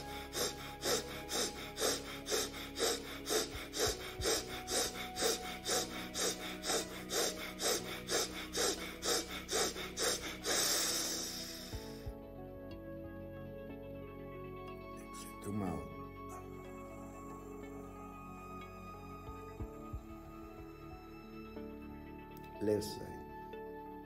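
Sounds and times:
forceful breaths through nostril: 0:00.0 - 0:12.1
long breath: 0:00.0 - 0:12.2
soft background music: 0:00.0 - 0:24.0.

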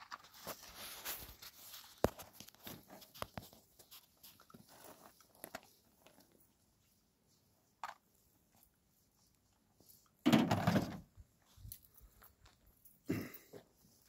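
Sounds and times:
footsteps crunching on stony ground: 0:00.0 - 0:06.3.

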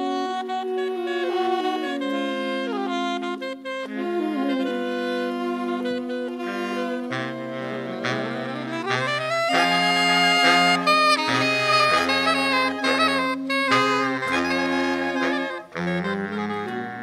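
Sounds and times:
clarinet playing: 0:00.0 - 0:17.0
saxophone ensemble: 0:00.0 - 0:17.0
low bass notes: 0:07.1 - 0:17.0.

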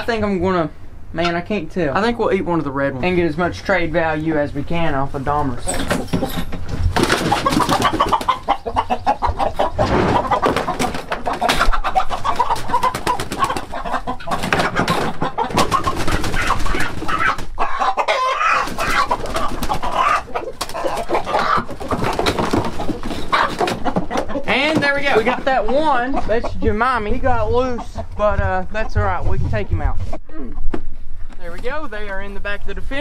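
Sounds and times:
roosters squawking and clucking: 0:02.6 - 0:32.4
knocks and rattles: 0:05.7 - 0:08.4, 0:09.7 - 0:17.5, 0:20.6 - 0:25.3.

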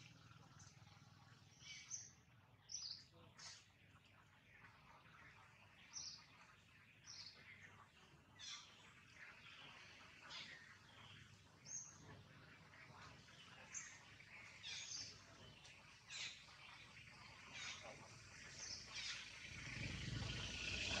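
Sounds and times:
faint outdoor background: 0:00.0 - 0:21.0
low rumble: 0:19.5 - 0:21.0.

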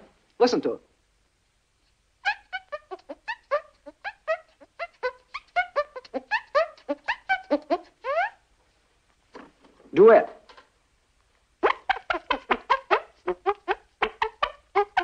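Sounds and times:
squeaky chirps: 0:02.2 - 0:08.4, 0:11.6 - 0:15.0.

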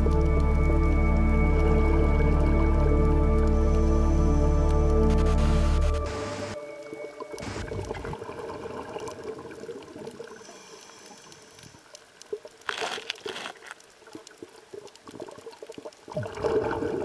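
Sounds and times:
low watery hiss: 0:00.0 - 0:17.0
small underwater clicks: 0:09.0 - 0:17.0.

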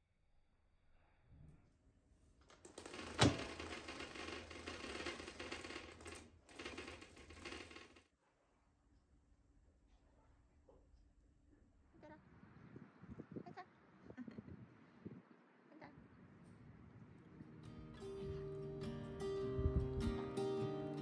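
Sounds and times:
roller blind mechanism rattling: 0:02.4 - 0:08.1.

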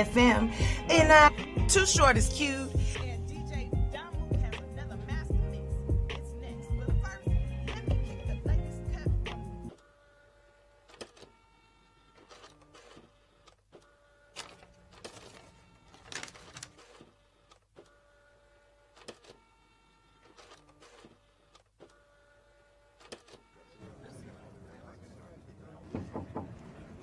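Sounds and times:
paper swishes: 0:14.4 - 0:17.6.

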